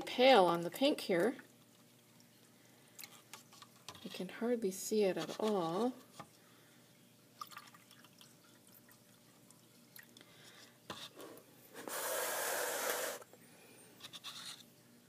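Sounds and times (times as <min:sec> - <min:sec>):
drink pouring between cups: 0:07.4 - 0:10.8.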